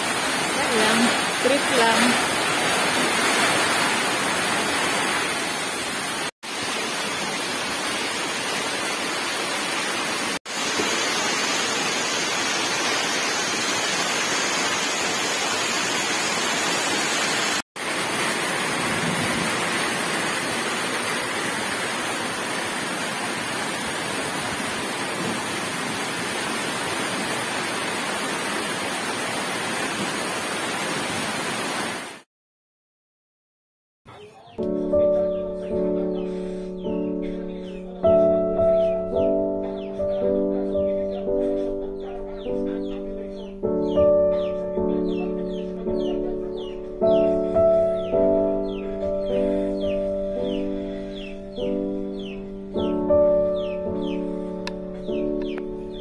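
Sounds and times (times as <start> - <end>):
flooded creek rushing: 0.0 - 32.2
heavy rain pouring: 0.0 - 32.2.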